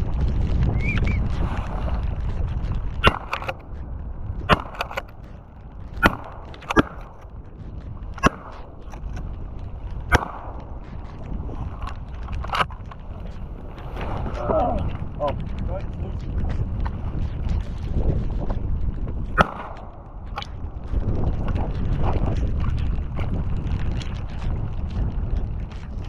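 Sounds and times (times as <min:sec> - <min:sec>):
wind buffeting microphone: 0:00.0 - 0:26.0
sharp clicks: 0:02.9 - 0:03.9, 0:04.5 - 0:09.3.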